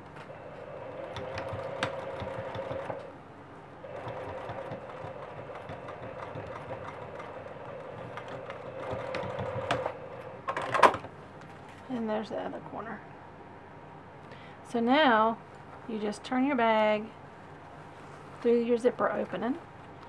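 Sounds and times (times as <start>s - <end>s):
sewing machine stitching: 0.5s - 3.1s, 3.8s - 10.2s.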